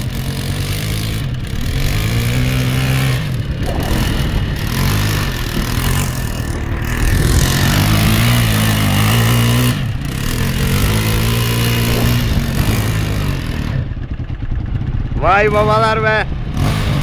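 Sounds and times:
quad engine revving hard: 0:00.0 - 0:14.1, 0:15.4 - 0:17.0.

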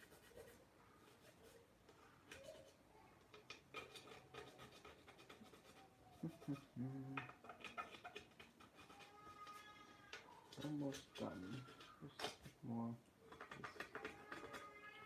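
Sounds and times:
plastic tool scraping metal: 0:02.3 - 0:12.6, 0:13.3 - 0:15.0
low hum of voice: 0:06.2 - 0:07.3.

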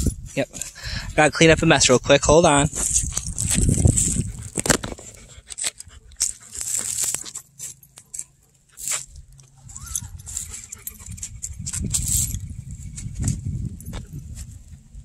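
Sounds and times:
sharp clicks and rustles: 0:02.7 - 0:14.5
dog sniffing and snuffling: 0:02.8 - 0:12.3.

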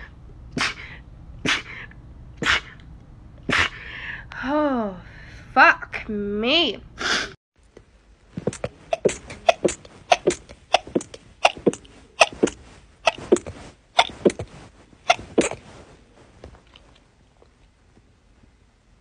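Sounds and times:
person sneezing: 0:00.6 - 0:02.8, 0:03.5 - 0:03.8, 0:08.4 - 0:14.5, 0:15.1 - 0:15.6
woman sneezing rapidly: 0:00.6 - 0:02.8, 0:03.5 - 0:03.8, 0:09.0 - 0:13.4, 0:15.1 - 0:15.6.

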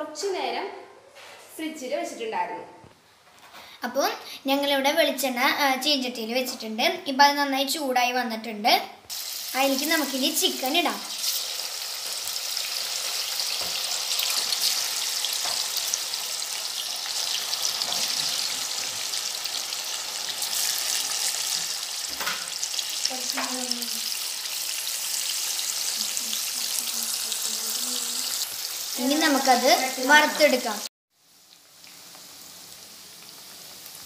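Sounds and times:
chicken sizzling in oil: 0:09.1 - 0:34.0.

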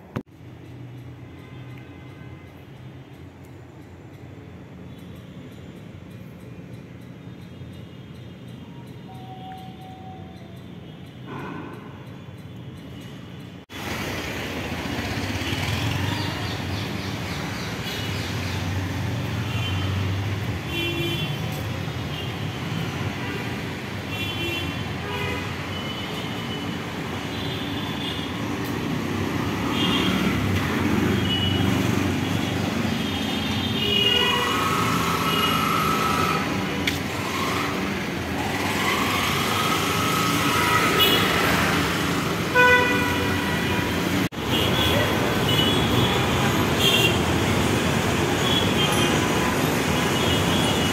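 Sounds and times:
street traffic: 0:00.0 - 0:50.9
vehicle horn toots: 0:42.5 - 0:46.2.

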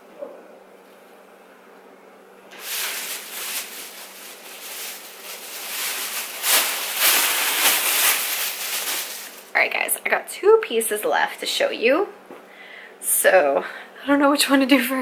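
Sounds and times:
clothes rustling and crinkling: 0:02.5 - 0:09.8.

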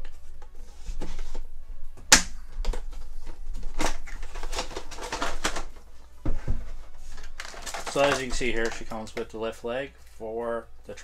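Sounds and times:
plastic crinkling against cardboard: 0:02.9 - 0:06.0, 0:06.7 - 0:09.4
sharp crack of packaging: 0:07.3 - 0:08.9.

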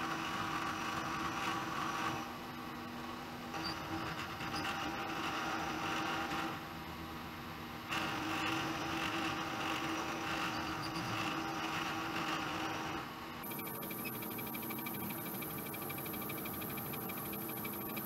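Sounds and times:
milling machine motor hum: 0:07.9 - 0:18.0.

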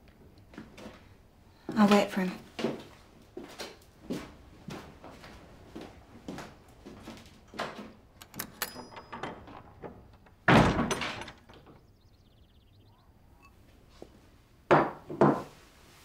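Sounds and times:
light knocks and clatter: 0:06.3 - 0:12.0
door shutting hard: 0:08.2 - 0:11.9.

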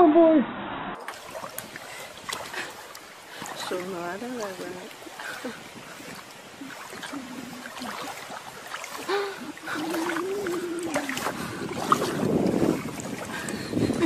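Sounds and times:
water splashing: 0:01.0 - 0:14.0
wavering vocal tone: 0:09.1 - 0:11.4.

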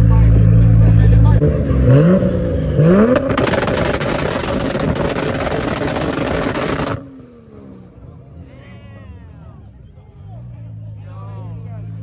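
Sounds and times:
car engine running: 0:00.0 - 0:07.3
exhaust pops and bangs: 0:03.1 - 0:07.0.

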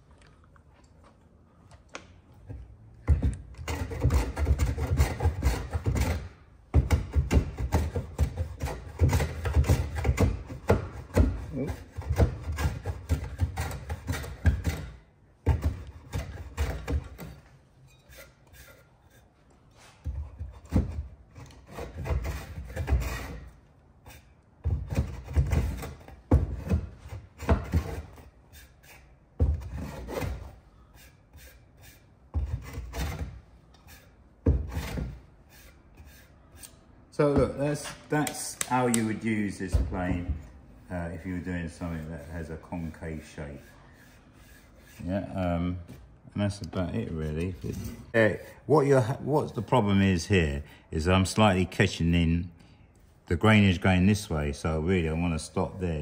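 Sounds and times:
plane scraping wood: 0:03.6 - 0:38.0, 0:39.0 - 0:45.8.

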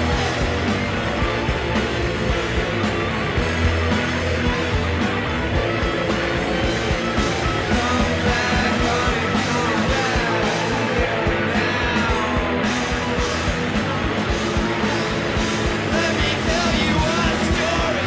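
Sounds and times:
rock band playing: 0:00.0 - 0:18.0.

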